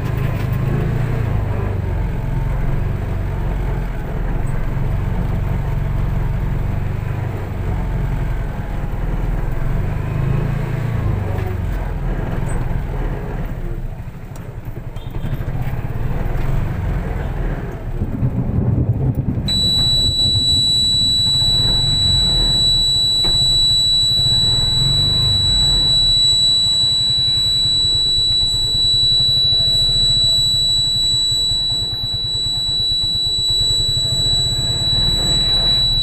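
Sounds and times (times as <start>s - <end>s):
car driving rumble: 0.0s - 36.0s
high-pitched electronic beep: 19.5s - 36.0s.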